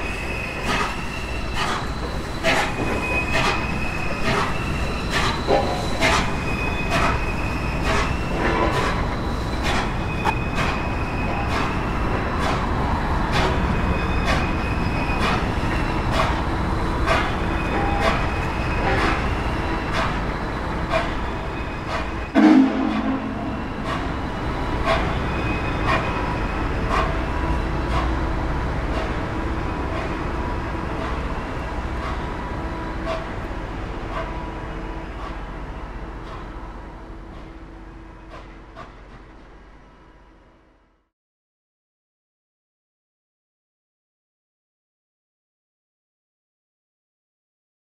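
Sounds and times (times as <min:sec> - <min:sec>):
thin wheel squeal: 0:00.0 - 0:12.0, 0:13.6 - 0:27.6
train wheels clicking over rail joints: 0:00.4 - 0:39.5
loud low horn blast: 0:22.4 - 0:24.0.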